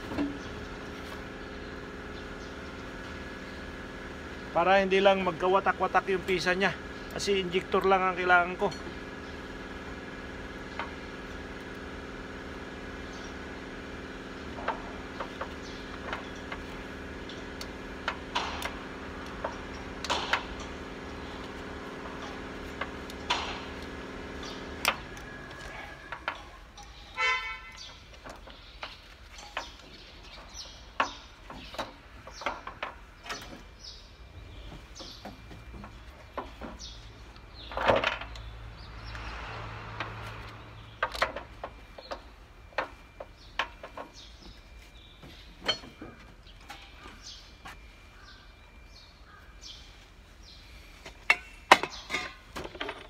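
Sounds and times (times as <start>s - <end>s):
steady background hum: 0.0s - 53.0s
horn-like toot: 27.2s - 27.8s.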